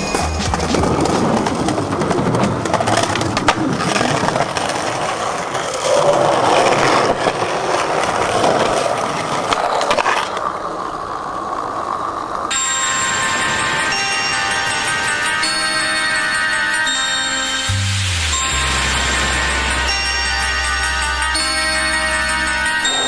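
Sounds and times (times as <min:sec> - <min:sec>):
music with ringing tones: 0:00.0 - 0:01.4, 0:12.5 - 0:23.0
skateboard clacking on ground: 0:00.0 - 0:16.9
skateboard wheels rolling: 0:00.0 - 0:23.0.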